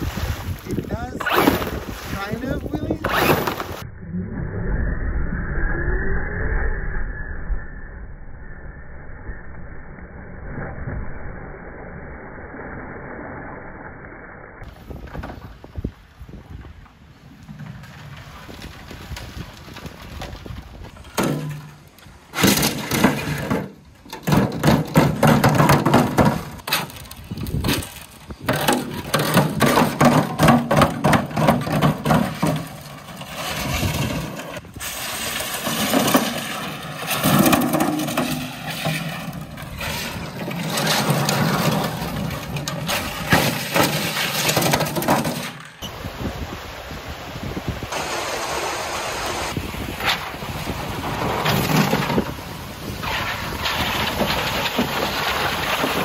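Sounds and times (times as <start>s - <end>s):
rough rolling sound: 14.6s - 45.9s, 47.8s - 56.0s
plastic wheels clattering down steps: 22.4s - 34.5s, 35.2s - 45.6s.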